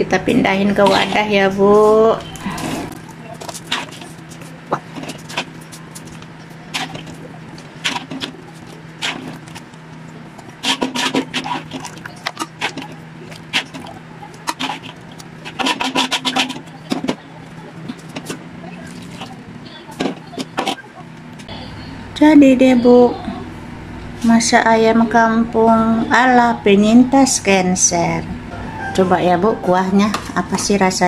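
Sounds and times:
steady low hum: 0:00.0 - 0:31.0
utensil scraping metal wok: 0:00.7 - 0:02.9, 0:14.4 - 0:16.7.

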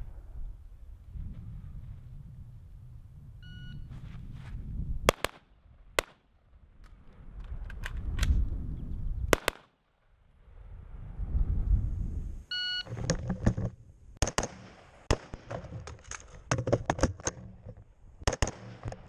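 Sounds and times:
shot timer beep: 0:03.4 - 0:03.9, 0:12.5 - 0:12.9
rifle shots: 0:05.1 - 0:06.2, 0:09.3 - 0:09.8, 0:14.2 - 0:15.6, 0:18.2 - 0:19.0.

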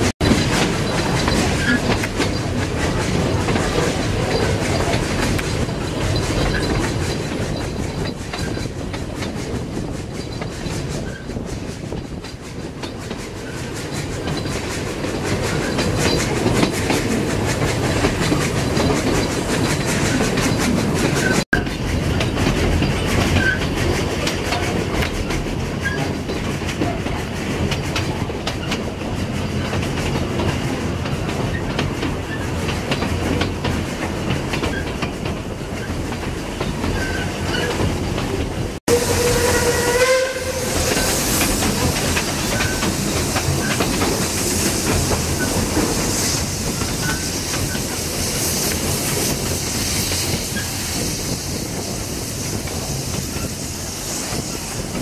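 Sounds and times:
steam train running: 0:00.0 - 0:55.0
wheels clicking over rail joints: 0:00.2 - 0:40.1, 0:40.7 - 0:51.9
steam whistle: 0:38.9 - 0:41.4.

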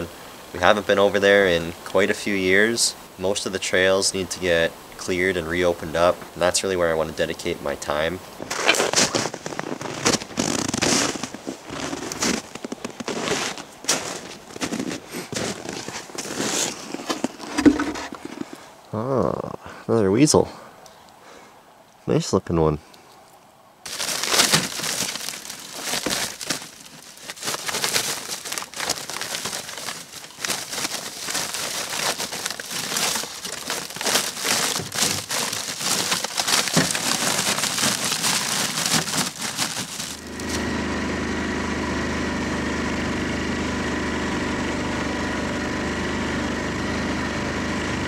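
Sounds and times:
plastic bag crinkling: 0:08.4 - 0:18.6, 0:23.9 - 0:40.6
atv engine running: 0:39.9 - 0:48.0.

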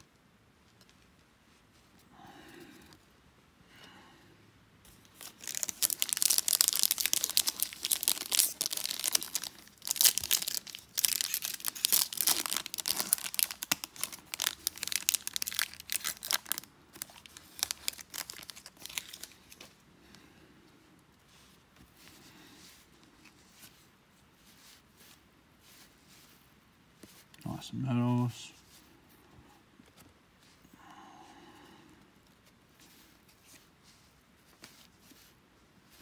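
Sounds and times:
foil wrapper tearing and crinkling: 0:05.1 - 0:19.6
cards being handled: 0:32.3 - 0:36.0.

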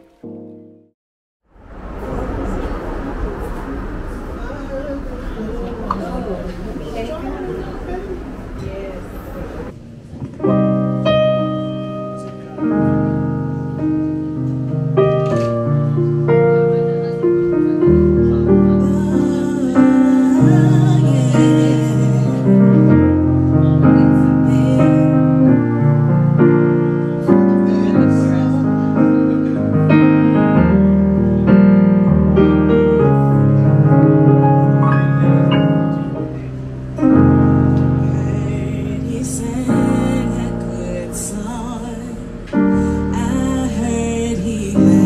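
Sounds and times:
keyboard piano chords: 0:00.0 - 0:00.9, 0:01.5 - 0:45.0
woman singing into microphone: 0:18.8 - 0:22.9, 0:24.0 - 0:25.6, 0:38.0 - 0:45.0.

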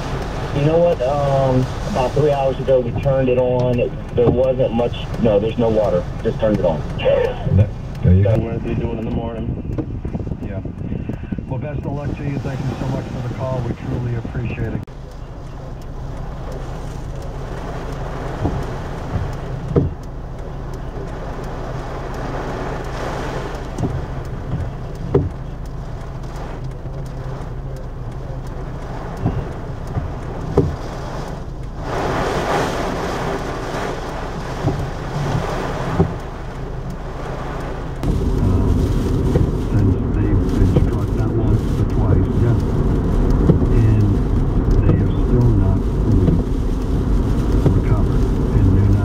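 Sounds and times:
car engine and road noise: 0:00.0 - 0:49.0
low rumble: 0:00.0 - 0:49.0
rain hissing on car: 0:00.0 - 0:49.0
sharp taps: 0:01.8 - 0:12.1, 0:14.7 - 0:21.6, 0:22.8 - 0:31.8, 0:33.4 - 0:37.0, 0:39.0 - 0:49.0.

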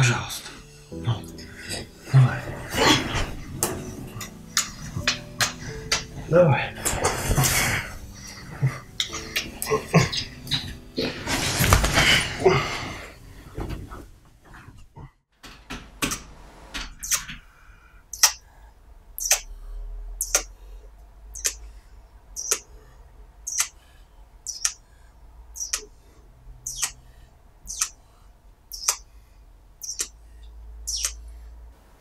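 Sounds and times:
bedding rustling: 0:00.0 - 0:15.0
bed creaking rhythmically: 0:00.0 - 0:32.0.

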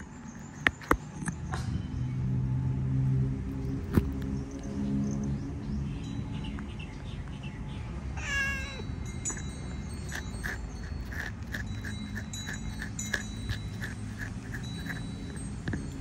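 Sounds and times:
collar bell jingling: 0:06.0 - 0:07.1, 0:08.3 - 0:16.0
cat meowing: 0:08.2 - 0:08.9.

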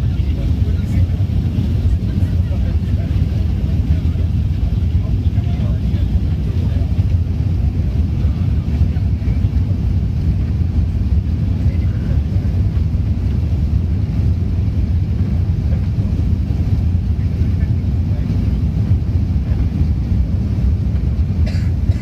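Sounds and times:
airplane cabin drone: 0:00.0 - 0:22.0.

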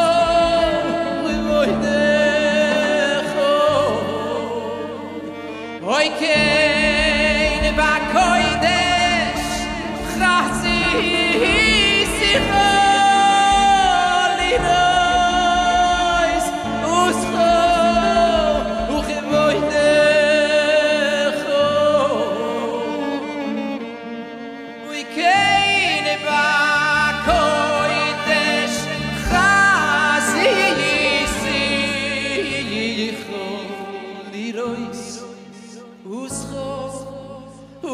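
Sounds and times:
man singing into a microphone: 0:00.0 - 0:37.9
band accompaniment with bass: 0:06.3 - 0:22.8.

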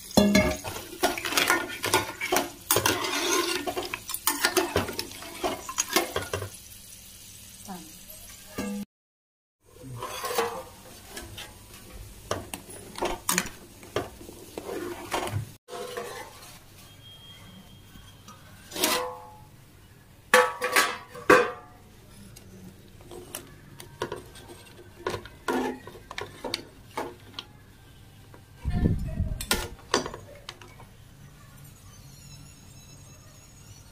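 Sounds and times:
ladle and lid clinking on pot: 0:00.2 - 0:06.5, 0:20.4 - 0:21.7.

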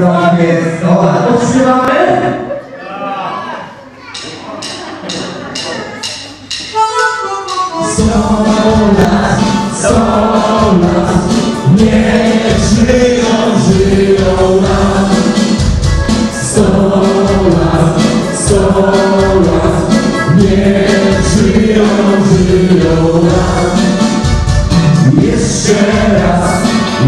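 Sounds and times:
band playing: 0:04.1 - 0:27.0
group singing in chorus: 0:07.8 - 0:27.0.

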